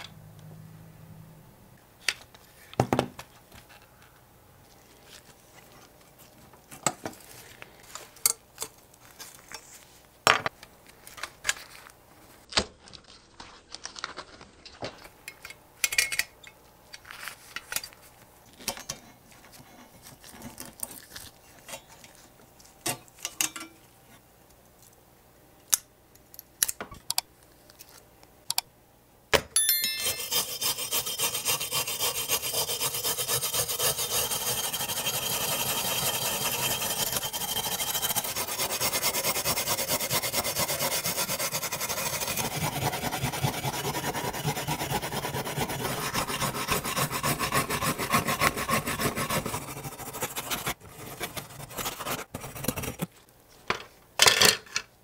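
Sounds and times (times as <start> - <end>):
wire brush scratching metal: 30.0 - 52.8.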